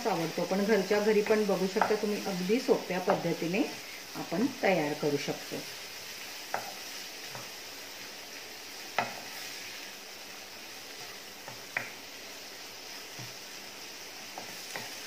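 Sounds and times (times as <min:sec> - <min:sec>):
vegetables sizzling in butter: 0:00.0 - 0:15.0.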